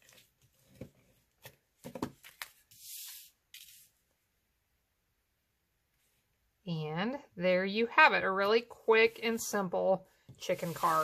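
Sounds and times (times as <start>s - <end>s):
card sliding across mat: 2.6s - 3.9s, 10.4s - 11.0s.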